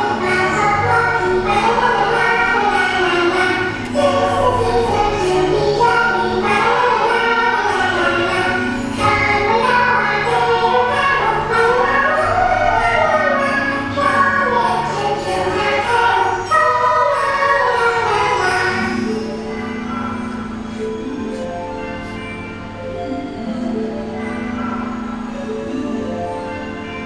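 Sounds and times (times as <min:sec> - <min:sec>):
choir singing: 0:00.0 - 0:21.2.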